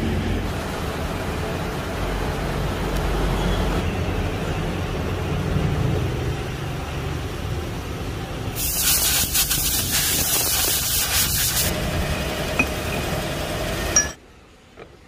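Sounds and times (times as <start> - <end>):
loud hiss: 8.6 - 11.8
lathe running: 11.6 - 14.2.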